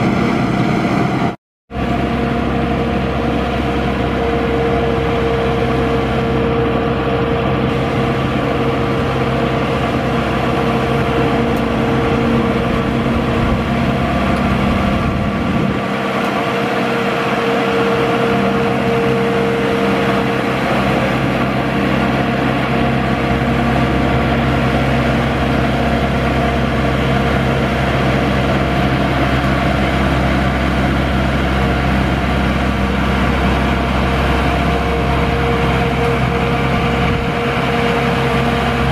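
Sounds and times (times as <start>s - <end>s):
rotavator engine running: 0.0s - 38.9s.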